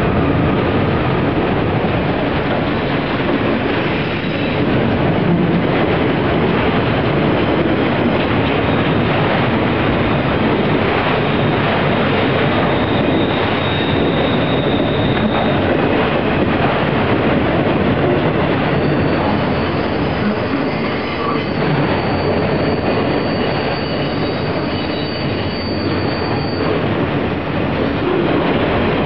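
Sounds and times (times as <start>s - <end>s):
train wheels rumbling on rails: 0.0s - 29.0s
high-pitched wheel squeal: 12.2s - 15.7s, 18.7s - 26.8s.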